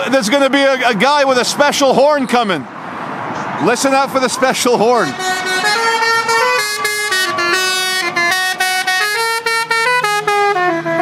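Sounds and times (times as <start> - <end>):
musical vehicle horn: 5.0 - 11.0.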